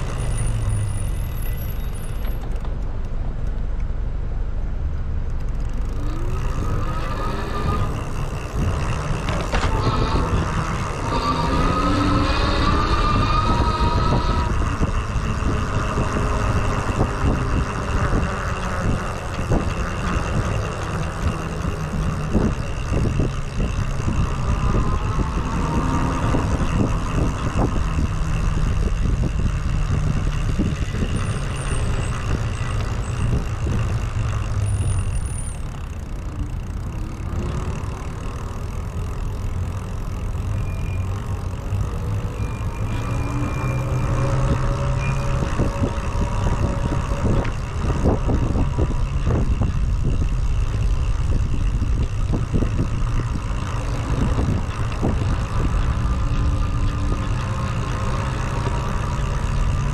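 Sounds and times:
cars passing: 0:00.0 - 0:59.9
low road rumble: 0:00.0 - 0:59.9
bike knocks and rattles: 0:05.1 - 0:12.9, 0:13.6 - 0:40.9.

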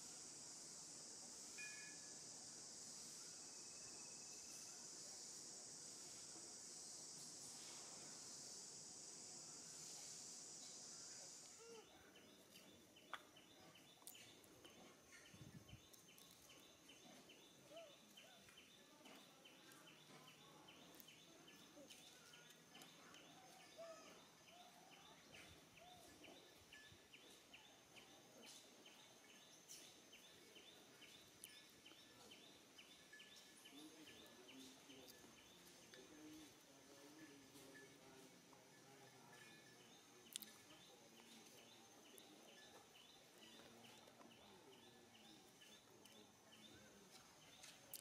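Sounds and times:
insect chirping: 0:00.0 - 0:14.5, 0:15.1 - 0:36.0.

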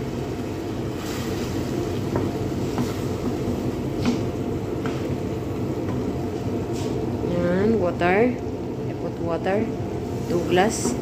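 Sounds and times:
low kitchen rumble: 0:00.0 - 0:11.0
wooden spatula knocking on pot: 0:02.0 - 0:05.1, 0:10.7 - 0:11.0.

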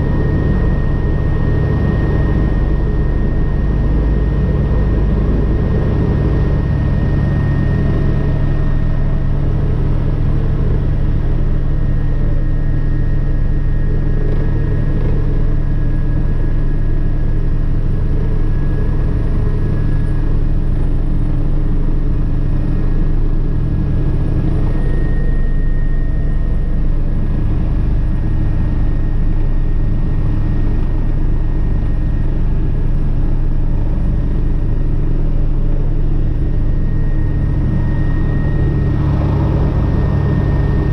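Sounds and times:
helicopter rotor and turbine drone: 0:00.0 - 0:40.9
high-pitched turbine whine: 0:00.0 - 0:40.9.

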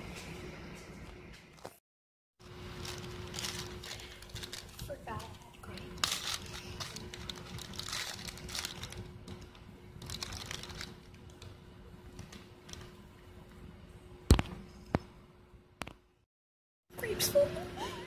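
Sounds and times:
plastic bag crinkling: 0:02.4 - 0:11.4.

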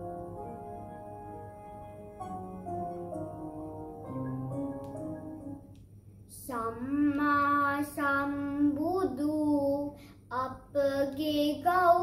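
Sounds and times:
soft keyboard music: 0:00.0 - 0:06.2
boy singing devotional song: 0:06.3 - 0:12.0.

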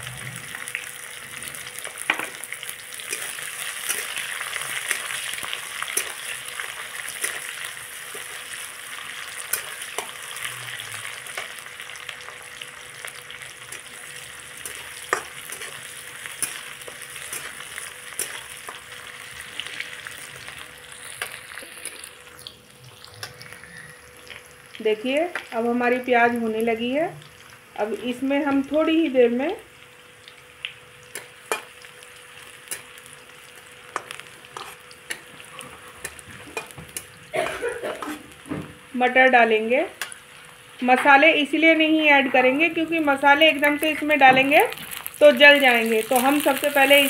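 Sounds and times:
onions sizzling in hot oil: 0:00.0 - 0:47.0
spatula scraping a pan: 0:14.6 - 0:18.8, 0:33.9 - 0:37.1.

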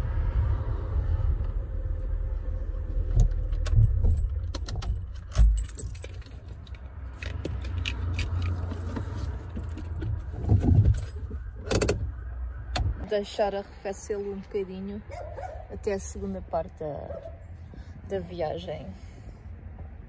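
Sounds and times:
car engine rumbling: 0:00.0 - 0:20.0
gear lever clicks and jingling: 0:03.2 - 0:09.0, 0:10.8 - 0:12.0.

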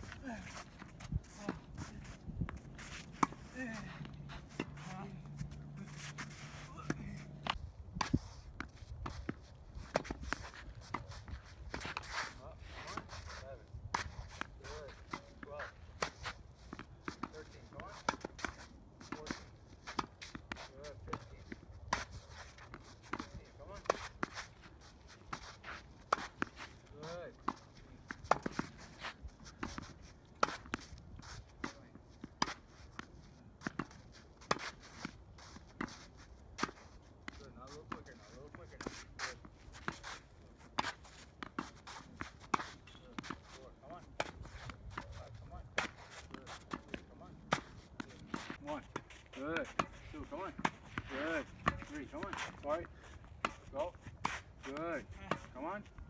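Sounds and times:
footsteps scuffing on court: 0:00.0 - 0:56.0
tennis racket hitting ball: 0:27.4 - 0:29.8, 0:45.7 - 0:52.6.

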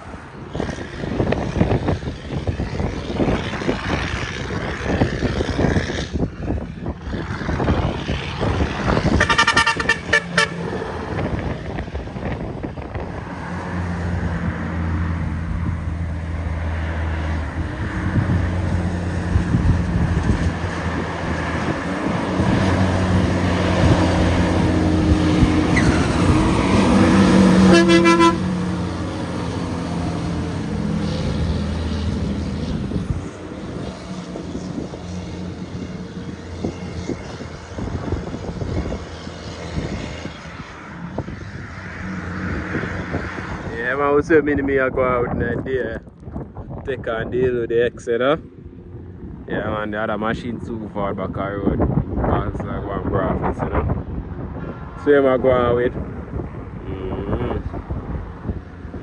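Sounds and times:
truck diesel engine labouring: 0:00.0 - 0:45.3, 0:55.1 - 0:59.0
gusty wind: 0:00.0 - 0:59.0
truck horn toots: 0:09.1 - 0:10.9, 0:26.7 - 0:28.8.

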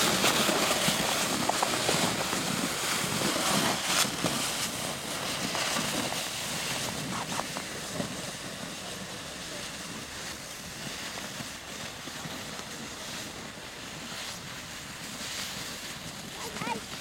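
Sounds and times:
plastic sled scraping over snow: 0:00.0 - 0:17.0.

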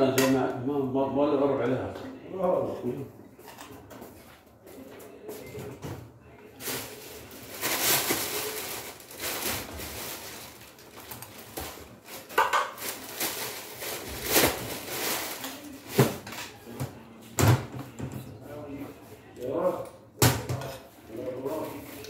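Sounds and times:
cutlery scraping and clinking plates: 0:03.4 - 0:04.3.

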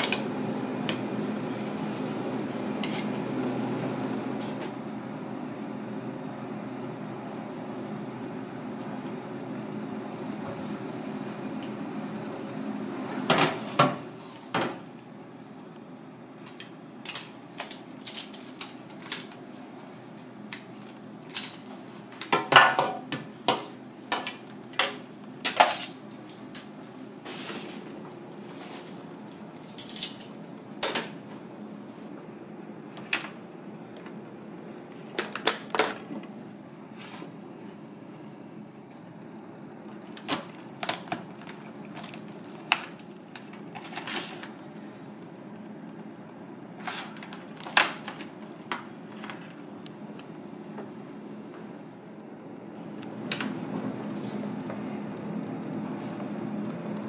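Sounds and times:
low room hum: 0:00.0 - 0:57.0
boiling water hiss: 0:00.2 - 0:14.6, 0:27.0 - 0:28.0.

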